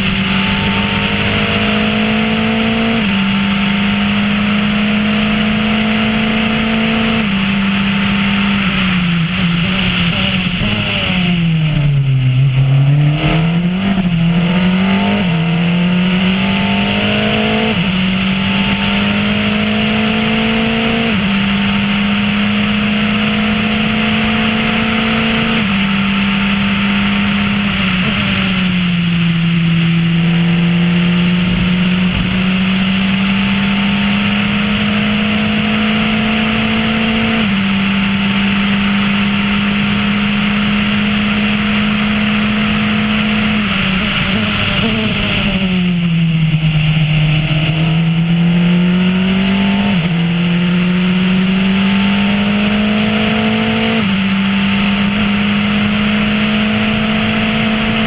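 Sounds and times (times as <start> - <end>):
race car engine: 0.0 - 58.0
wind noise: 6.1 - 35.8.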